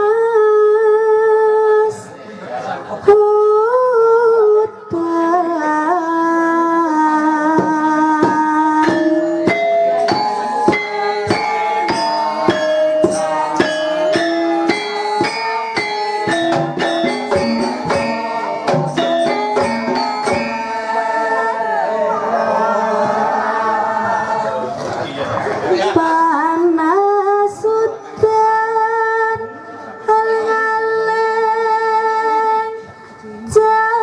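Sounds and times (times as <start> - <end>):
hand drum strokes: 7.6 - 20.9
ringing metallophones: 7.6 - 23.7, 29.3 - 34.0
gamelan playing: 7.6 - 24.4.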